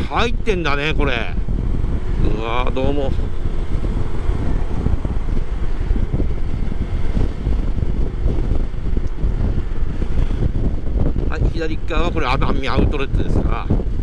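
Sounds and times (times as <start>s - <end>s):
wind buffeting microphone: 0.0s - 14.0s
scooter engine rumble: 1.4s - 11.4s.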